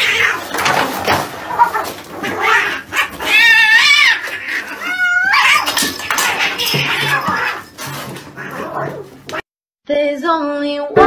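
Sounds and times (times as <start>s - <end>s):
cat yowling: 0.0s - 0.7s, 1.4s - 9.4s.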